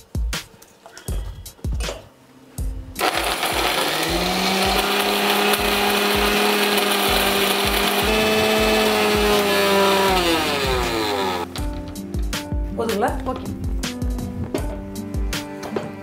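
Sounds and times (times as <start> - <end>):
mixer grinder motor whine: 3.0 - 11.5.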